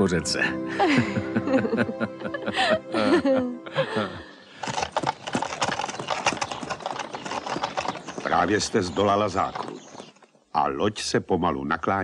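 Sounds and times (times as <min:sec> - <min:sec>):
people laughing: 0:00.7 - 0:04.4
hooves clip-clopping on dirt: 0:04.6 - 0:10.5.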